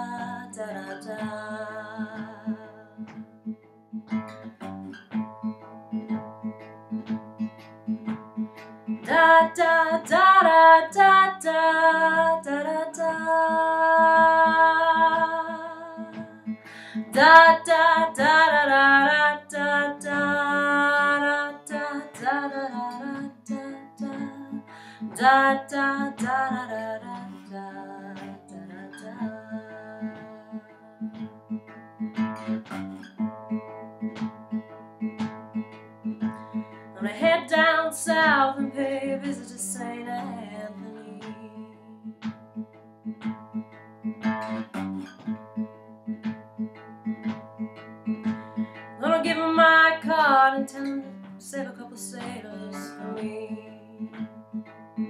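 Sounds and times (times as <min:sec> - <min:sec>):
woman singing blues: 0:00.0 - 0:03.1, 0:09.0 - 0:31.1, 0:37.0 - 0:42.1, 0:48.6 - 0:54.3
acoustic guitar playing: 0:00.0 - 0:55.0.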